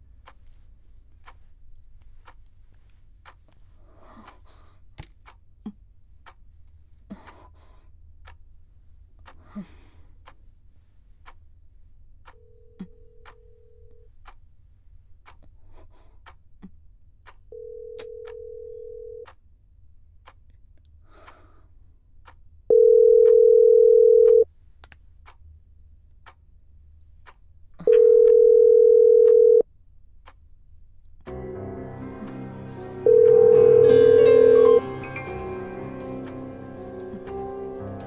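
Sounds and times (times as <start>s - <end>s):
clock ticking faintly: 0.0s - 11.6s, 15.2s - 19.4s, 20.2s - 21.6s, 26.2s - 30.4s, 31.2s - 38.0s
telephone ringback tone: 17.6s - 19.2s, 22.7s - 24.4s, 27.9s - 29.6s, 33.0s - 34.8s.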